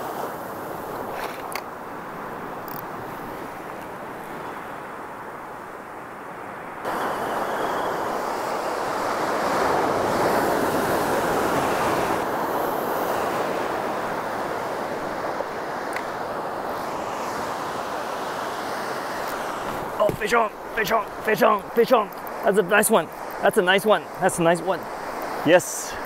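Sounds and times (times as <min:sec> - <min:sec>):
surf breaking in shallow water: 0:06.8 - 0:26.0.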